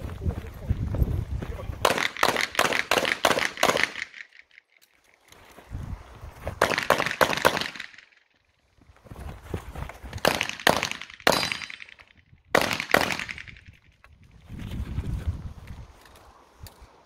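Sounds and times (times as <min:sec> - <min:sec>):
handgun shots: 0:01.9 - 0:04.4, 0:06.6 - 0:08.0, 0:10.2 - 0:12.0, 0:12.6 - 0:13.6.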